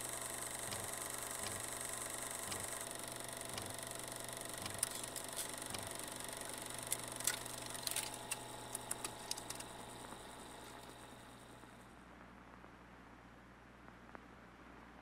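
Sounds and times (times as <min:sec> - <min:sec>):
sharp clicks: 0:00.0 - 0:11.0
steady hum with hiss: 0:00.0 - 0:15.0.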